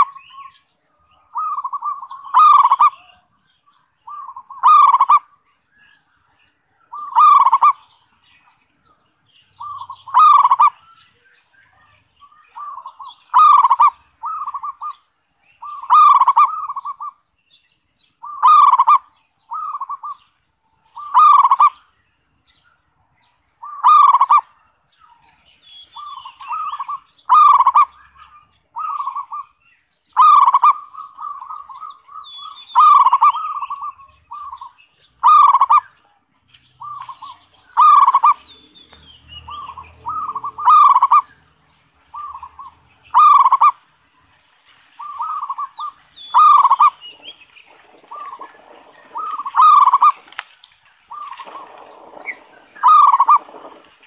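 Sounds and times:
dove cooing: 0:01.2 - 0:03.2, 0:04.1 - 0:05.3, 0:06.9 - 0:08.0, 0:09.6 - 0:10.8, 0:12.5 - 0:15.0, 0:15.6 - 0:17.2, 0:18.2 - 0:20.2, 0:20.9 - 0:21.8, 0:23.6 - 0:24.5, 0:26.0 - 0:29.5, 0:30.2 - 0:36.0, 0:36.8 - 0:38.5, 0:39.5 - 0:41.4, 0:42.1 - 0:43.8, 0:45.0 - 0:50.4, 0:51.0 - 0:54.0.

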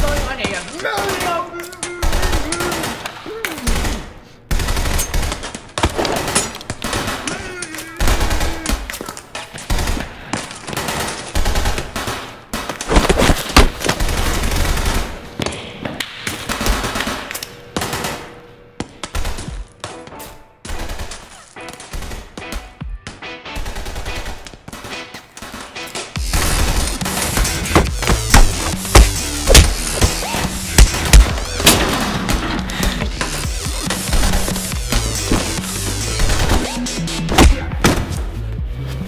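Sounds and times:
sharp impacts and bangs: 0:24.0 - 0:38.4.

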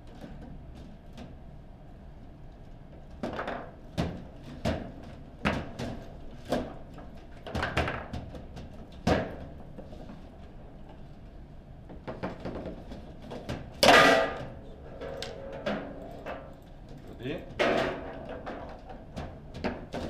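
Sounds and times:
table football knocks and clacks: 0:07.4 - 0:09.5.

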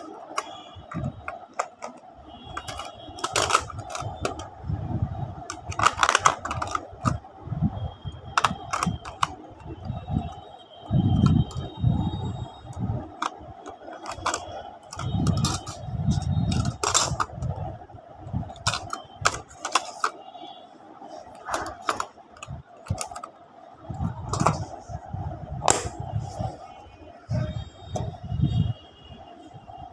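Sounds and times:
plastic instruments clattering in metal tin: 0:00.0 - 0:04.5, 0:05.4 - 0:07.2, 0:08.3 - 0:10.4, 0:13.0 - 0:17.4, 0:18.5 - 0:20.2, 0:21.3 - 0:23.3, 0:24.3 - 0:24.7.

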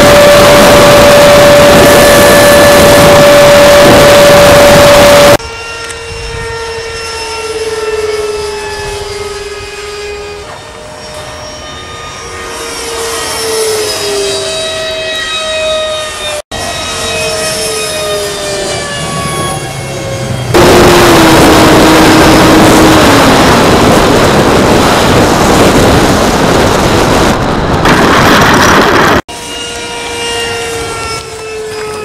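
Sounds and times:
wind rush: 0:00.0 - 0:05.4, 0:20.5 - 0:29.3
model jet fan whining: 0:00.0 - 0:32.0.

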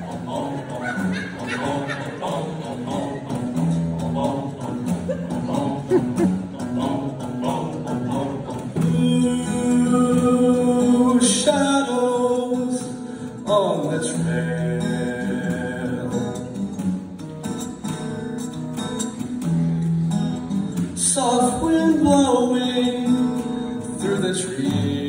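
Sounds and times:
vocal group singing in harmony: 0:00.0 - 0:16.8, 0:21.7 - 0:25.0
strummed acoustic guitar: 0:00.0 - 0:25.0.

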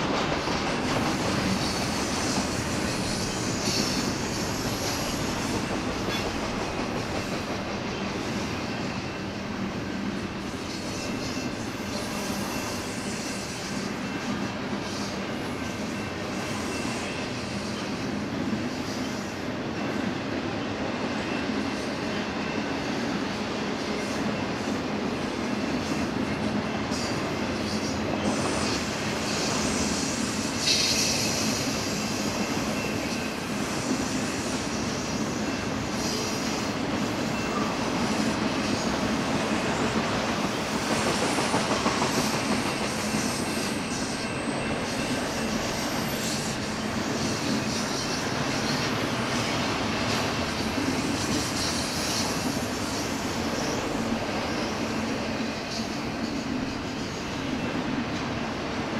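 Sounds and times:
freight train cars rolling on rails: 0:00.0 - 0:58.9
faint wheel squeal: 0:15.9 - 0:17.9.

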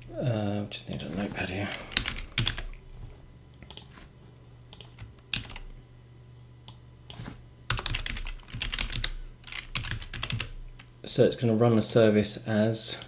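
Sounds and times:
computer keyboard typing: 0:01.9 - 0:02.9, 0:03.7 - 0:03.9, 0:04.7 - 0:05.7, 0:07.1 - 0:10.9.

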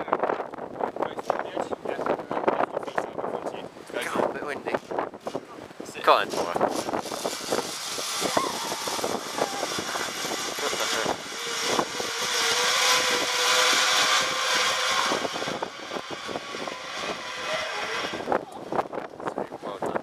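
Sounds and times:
zip wire trolley whirring: 0:06.3 - 0:18.8.

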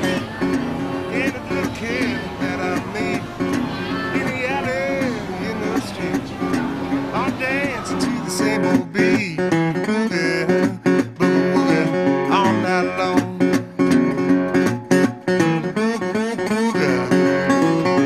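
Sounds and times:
strummed acoustic guitar song: 0:00.0 - 0:18.0.

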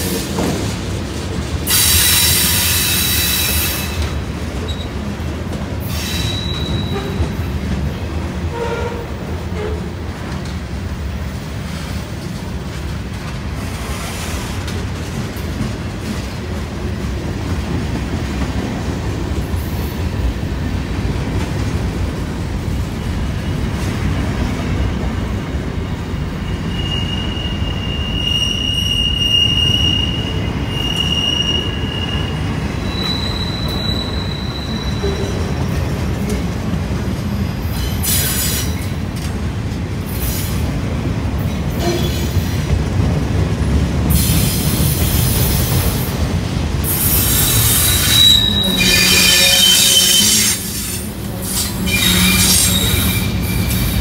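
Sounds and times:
train wheels rumbling on rail: 0:00.0 - 0:54.0
wheel flanges squealing: 0:26.4 - 0:35.6, 0:47.1 - 0:50.6.

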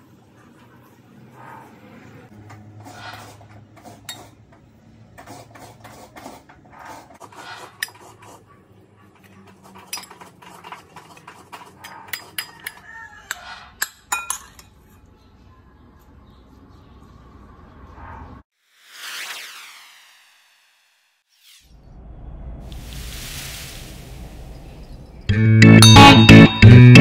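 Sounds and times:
spoon scraping and clinking dishes: 0:09.2 - 0:15.0.

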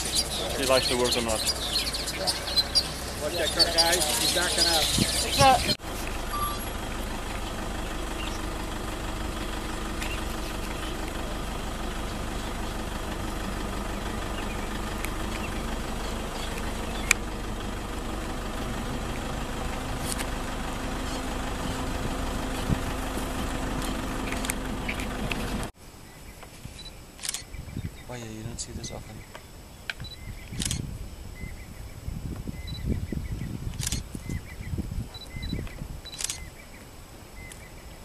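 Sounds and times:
vehicle engine idling: 0:00.0 - 0:25.8, 0:27.2 - 0:27.4, 0:28.4 - 0:38.0
sharp click: 0:29.9 - 0:30.8, 0:33.8 - 0:34.0.

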